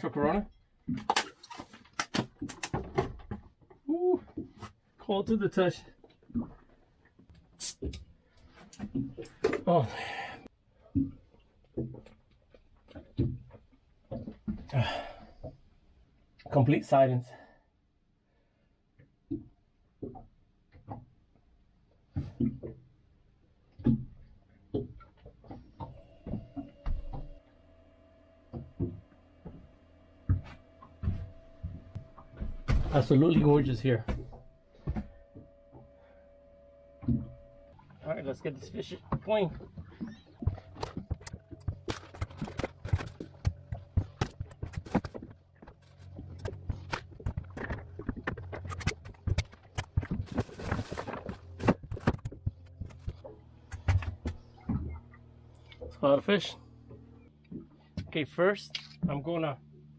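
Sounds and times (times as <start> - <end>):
knocks and thumps in boat cabin: 0.4 - 5.4, 8.5 - 9.7, 10.8 - 15.7, 22.0 - 27.4, 28.4 - 36.2, 36.8 - 38.0, 38.6 - 56.0, 56.9 - 58.4
faint steady hum: 25.8 - 59.9.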